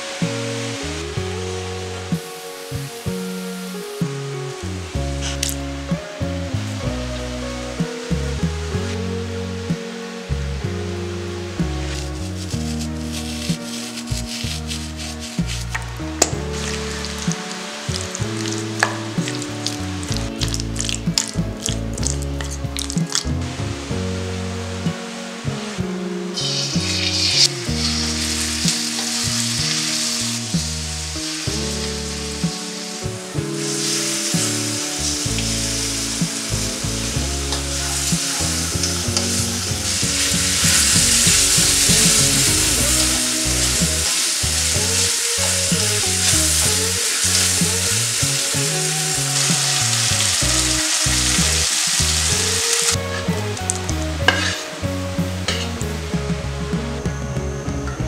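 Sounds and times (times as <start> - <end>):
chicken sizzling in oil: 0.0 - 56.9
spatula scraping wok: 26.4 - 55.8.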